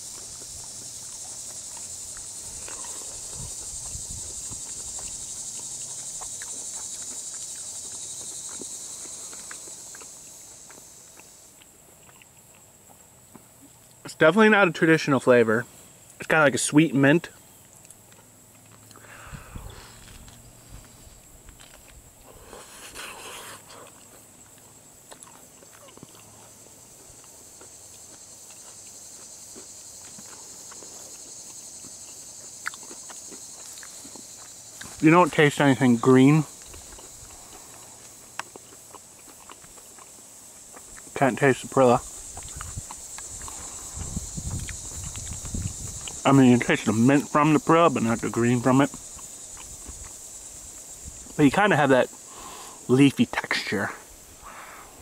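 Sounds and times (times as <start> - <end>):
insects chorus: 0.0 - 55.0
dull low thumps: 42.2 - 46.2.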